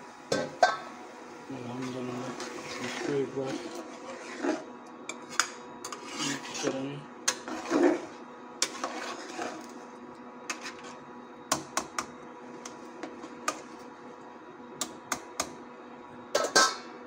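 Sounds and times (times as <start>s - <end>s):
metal spoon stirring in metal pot: 1.8s - 9.8s, 10.5s - 11.0s.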